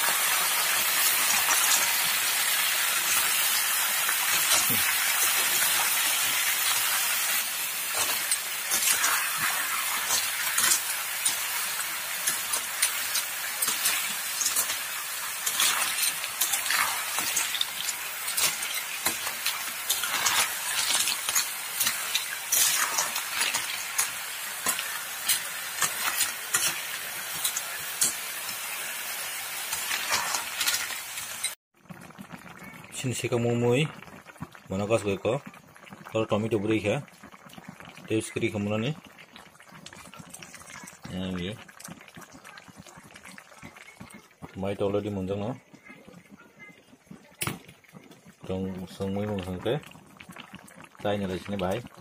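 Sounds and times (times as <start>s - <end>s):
food sizzling in oil: 0.0s - 52.0s
metal spatula scraping wok: 4.2s - 28.6s.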